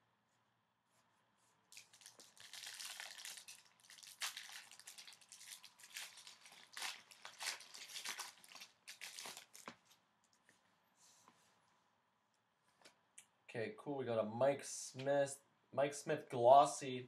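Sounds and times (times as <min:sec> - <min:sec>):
foil wrapper crinkling and tearing: 0:01.7 - 0:10.0.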